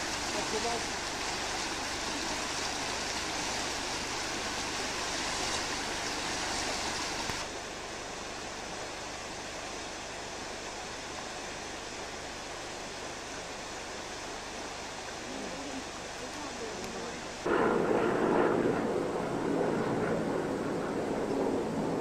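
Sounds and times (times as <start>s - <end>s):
river water rushing: 0.0s - 17.5s.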